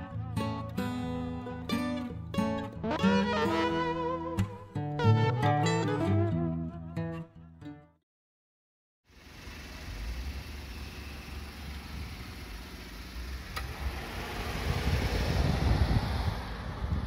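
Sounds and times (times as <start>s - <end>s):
wind buffeting microphone: 13.8s - 17.0s.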